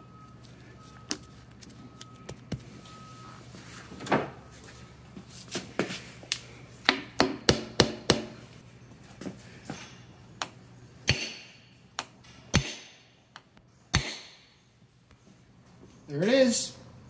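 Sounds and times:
sharp hammer blows: 11.1s - 11.7s, 12.5s - 13.1s, 13.9s - 14.5s.

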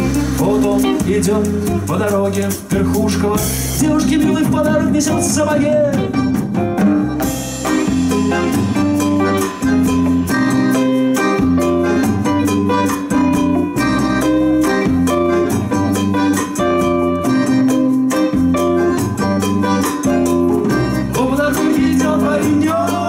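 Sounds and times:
saxophone: 0.0s - 1.7s, 5.6s - 23.0s
bass guitar: 0.0s - 23.0s
drum kit: 0.0s - 23.0s
electric guitar: 0.0s - 23.0s
button accordion: 5.6s - 23.0s.

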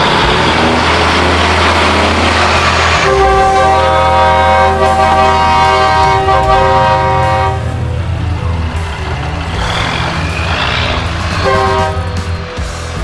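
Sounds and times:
road noise: 0.0s - 13.0s
truck engine rumble: 0.0s - 13.0s
truck horn blast: 0.3s - 8.0s, 9.5s - 12.4s.

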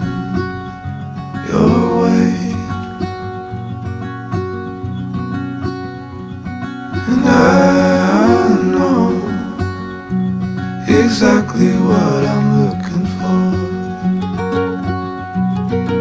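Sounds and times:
guitar accompaniment: 0.0s - 16.0s
person singing: 1.4s - 3.1s, 7.0s - 10.0s, 10.8s - 14.4s.

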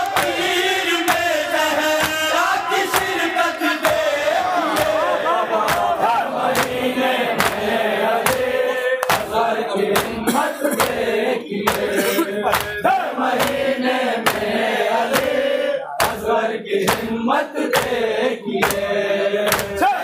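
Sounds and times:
men chanting in unison: 0.0s - 20.0s
chest beating slaps: 5.6s - 6.8s, 7.4s - 11.0s, 11.7s - 13.6s, 14.2s - 14.5s, 16.0s - 16.3s, 16.9s - 17.1s, 19.5s - 19.8s.

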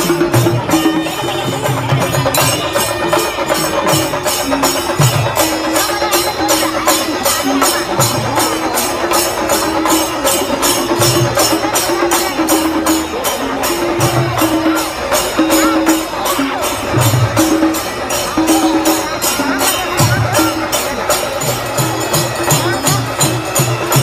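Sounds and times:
jingling percussion strikes: 0.0s - 24.0s
low drum beats: 0.0s - 24.0s.

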